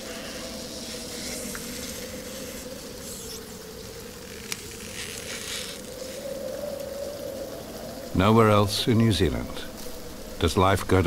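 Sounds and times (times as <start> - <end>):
faint hiss: 0.0 - 11.0
soft crackles: 0.0 - 11.0.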